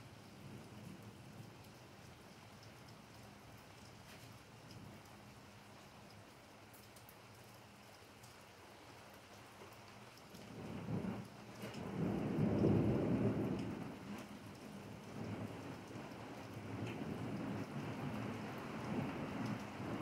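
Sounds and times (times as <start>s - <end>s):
low rumble of thunder: 0.0s - 2.3s, 10.4s - 20.0s
steady rain falling: 0.0s - 20.0s.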